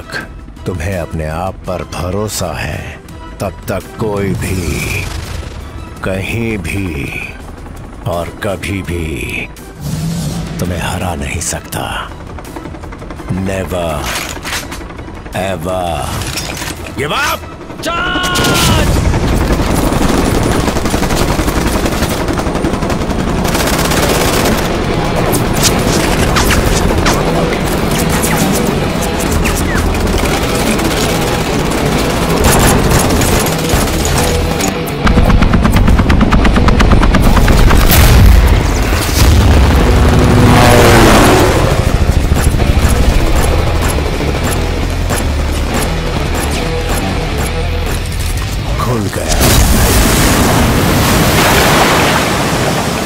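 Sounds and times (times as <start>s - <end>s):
film music score: 0.0s - 51.2s
rapid automatic gunfire: 18.4s - 38.8s, 40.7s - 48.0s
quick pulsing rhythm: 41.8s - 48.0s.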